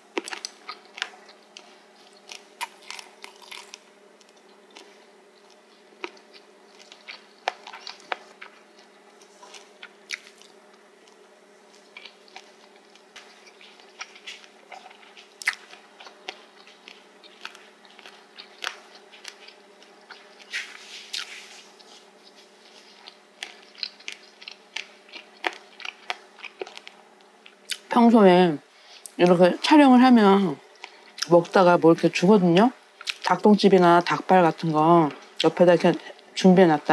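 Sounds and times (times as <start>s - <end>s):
crisp chewing crunches: 0.1s - 28.0s, 33.0s - 33.5s.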